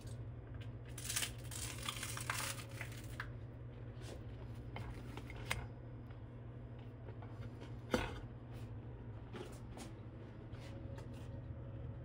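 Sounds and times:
crunching and chewing: 0:00.0 - 0:03.4
steady low hum: 0:00.0 - 0:12.0.

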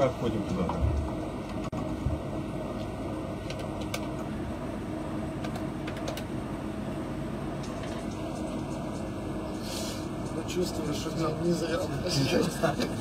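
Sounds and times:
mechanical hum: 0:00.0 - 0:13.0
hiss: 0:09.6 - 0:10.1.

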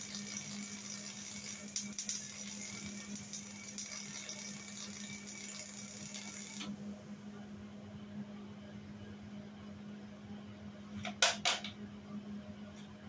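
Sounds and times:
arc welding crackling hiss: 0:00.0 - 0:06.7.

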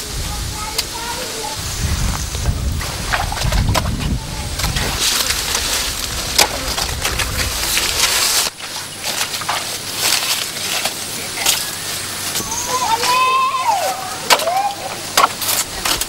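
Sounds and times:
blade chopping plant stalks: 0:03.1 - 0:13.2, 0:14.2 - 0:16.0.

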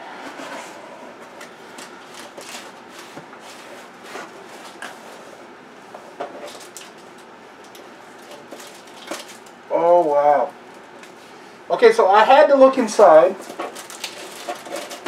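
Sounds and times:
cardboard rustling and scraping: 0:00.0 - 0:05.4, 0:13.4 - 0:15.0.

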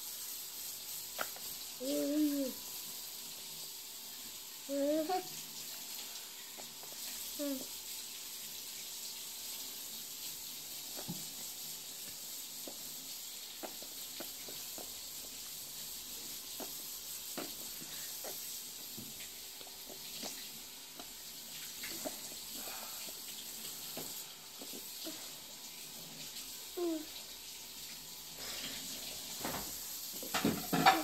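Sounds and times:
steady hiss: 0:00.0 - 0:31.0
toddler sucking a spoon: 0:01.1 - 0:02.6, 0:04.7 - 0:05.3, 0:06.6 - 0:07.7, 0:12.6 - 0:15.5, 0:16.3 - 0:18.9, 0:26.8 - 0:27.2.

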